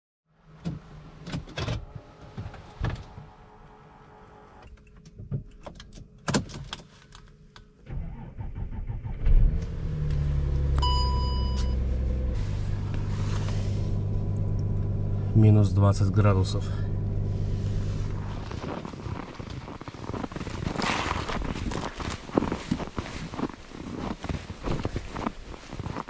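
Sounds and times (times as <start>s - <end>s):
car engine starting and idling: 7.8s - 23.6s
short electronic beep: 10.8s - 11.9s.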